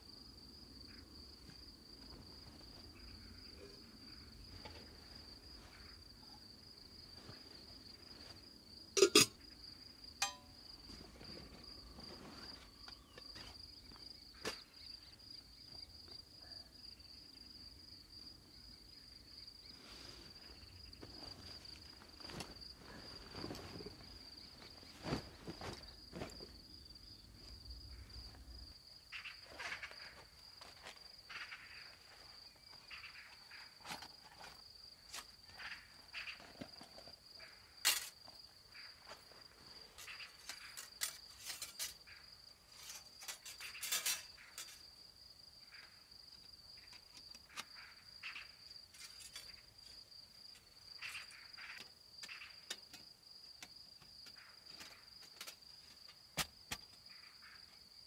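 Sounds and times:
crickets chirping: 0.0s - 58.0s
camp stove clicks and taps: 10.2s - 10.5s.

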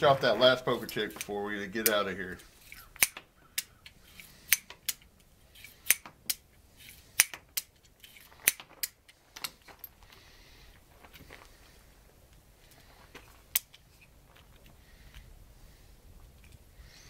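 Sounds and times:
revolver metallic clicks: 0.9s - 6.4s.

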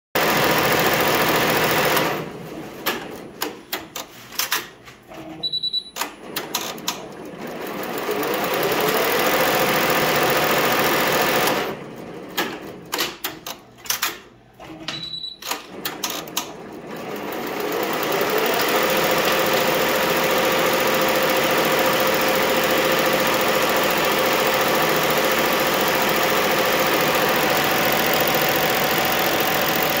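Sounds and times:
embroidery machine stitching: 0.2s - 2.3s, 6.0s - 13.5s, 15.5s - 30.0s
short beep: 5.4s - 6.0s, 14.9s - 15.5s
machine clicks: 12.3s - 14.3s.

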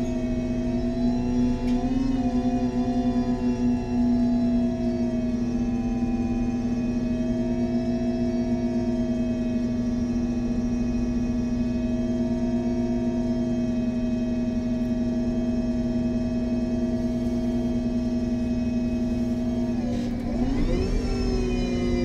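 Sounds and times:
bus engine whine and hum: 0.0s - 22.0s.

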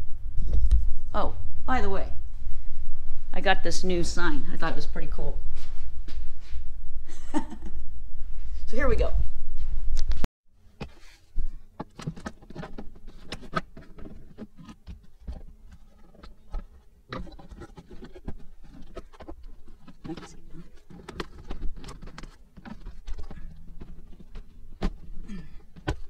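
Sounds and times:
plastic trim clicks and scraping: 11.8s - 25.1s.

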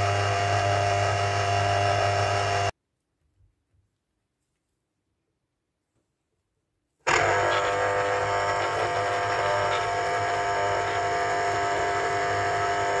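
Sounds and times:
electric juicer motor running: 0.0s - 2.7s, 7.1s - 13.0s.

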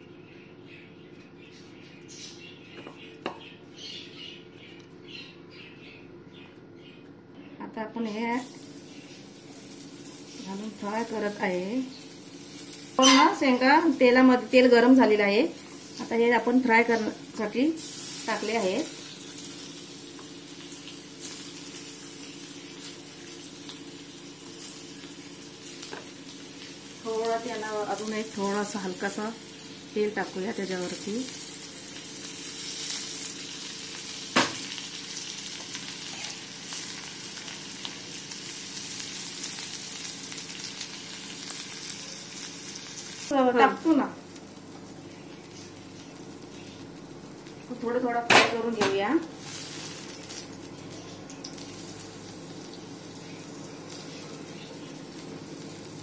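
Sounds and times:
bird-like chirps: 0.1s - 7.6s
food frying in oil: 8.0s - 56.0s.

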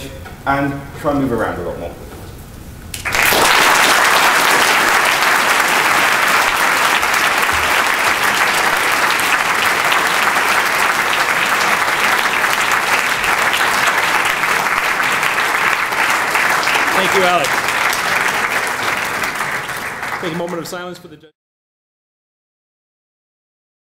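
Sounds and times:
audience applauding: 2.9s - 21.1s.

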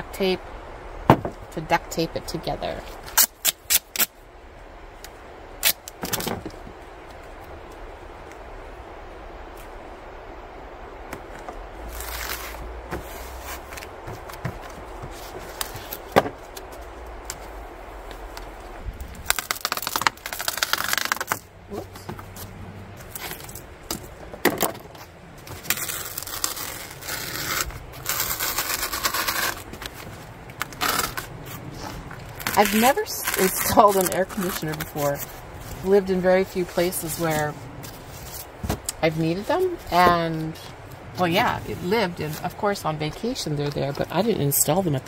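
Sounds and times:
tape ripping off roll: 11.9s - 17.5s, 19.1s - 21.5s, 24.4s - 36.0s.

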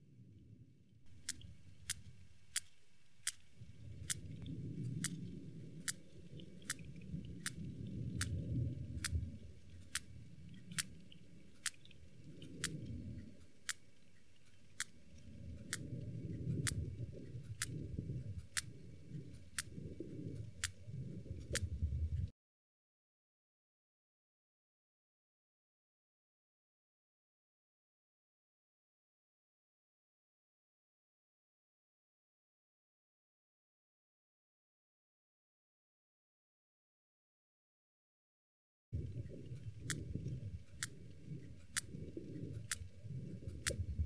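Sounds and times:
sperm whale clicks: 1.1s - 22.3s, 39.0s - 44.0s
low underwater rumble: 3.4s - 22.3s, 39.0s - 44.0s.

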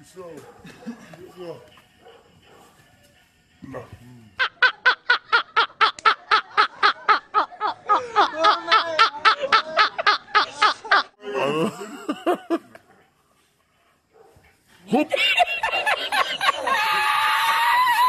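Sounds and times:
man laughing hard: 4.4s - 12.8s, 15.0s - 18.0s.

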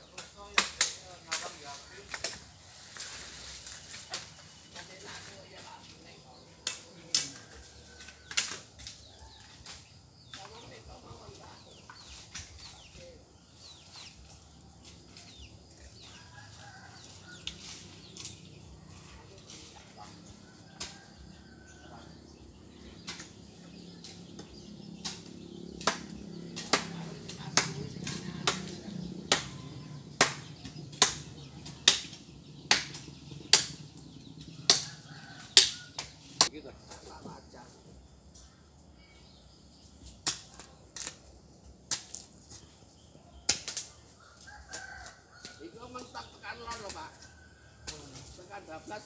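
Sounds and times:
small birds chirping: 0.0s - 49.0s
sharp taps or rustles: 23.0s - 37.1s.

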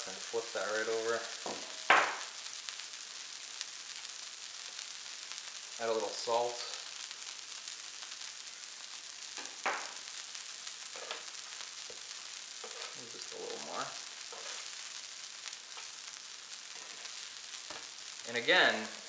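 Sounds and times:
food sizzling on a griddle: 0.0s - 19.0s
spatula knocking on griddle: 9.4s - 9.9s.

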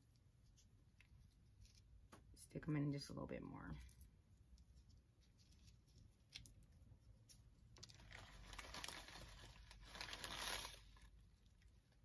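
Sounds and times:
plastic bag crinkling: 7.8s - 11.7s.

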